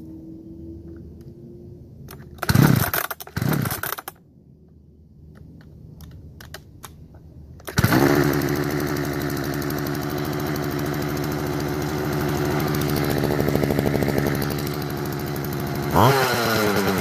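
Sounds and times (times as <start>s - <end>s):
two-stroke chainsaw engine running: 2.4s - 4.1s, 7.7s - 17.0s
chainsaw starter pulls: 2.4s - 4.2s, 7.6s - 17.0s.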